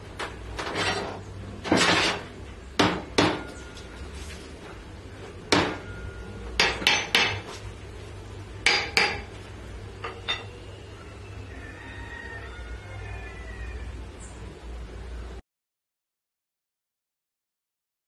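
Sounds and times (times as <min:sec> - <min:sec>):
metal scraping on wood: 0:00.5 - 0:02.4
metal tools clanking: 0:10.0 - 0:10.6.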